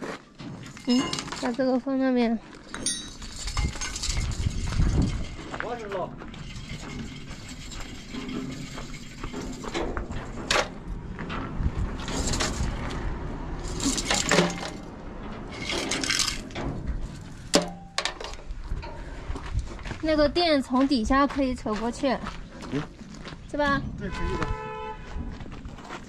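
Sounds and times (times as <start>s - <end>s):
footsteps crunching on gravel: 4.0s - 8.0s, 18.4s - 26.0s.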